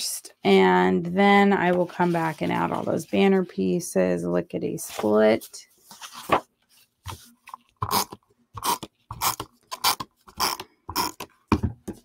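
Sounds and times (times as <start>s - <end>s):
paper rustling: 1.6s - 3.5s, 4.8s - 7.7s.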